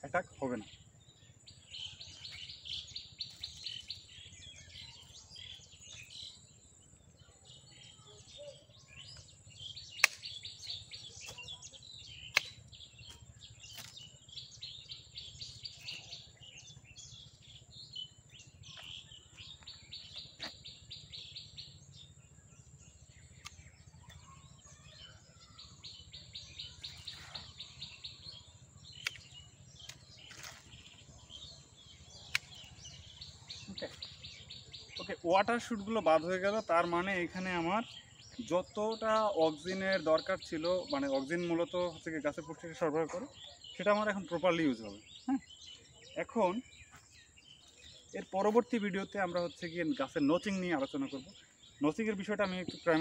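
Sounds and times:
pruning shears snipping: 0:10.0 - 0:10.4, 0:12.3 - 0:12.7, 0:13.6 - 0:14.1, 0:29.0 - 0:30.7, 0:32.3 - 0:32.7.

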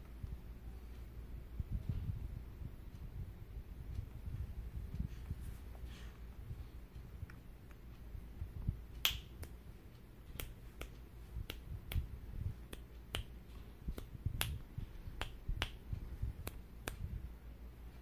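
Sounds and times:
fingers snapping: 0:09.0 - 0:09.6, 0:10.3 - 0:17.1.

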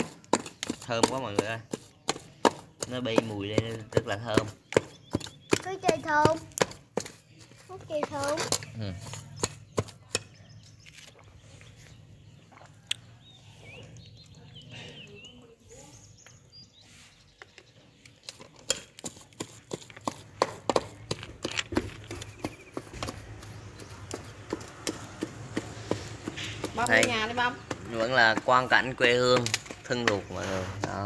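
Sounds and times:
pestle pounding in metal pot: 0:00.0 - 0:10.5, 0:18.6 - 0:31.0.

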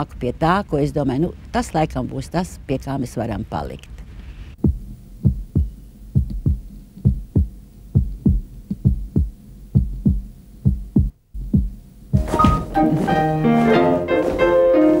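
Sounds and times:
heartbeat-like low thuds: 0:04.6 - 0:12.8.

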